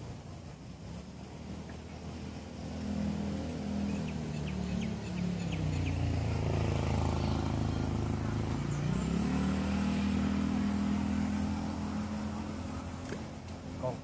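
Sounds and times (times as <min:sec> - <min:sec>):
engine running: 0:00.0 - 0:14.0.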